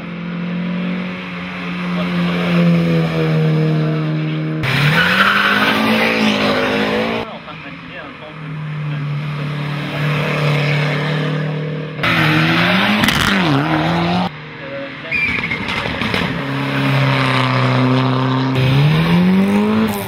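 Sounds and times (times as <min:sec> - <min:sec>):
rally car engines at high revs: 0:00.0 - 0:20.0
car accelerating hard: 0:08.7 - 0:14.3, 0:15.3 - 0:20.0.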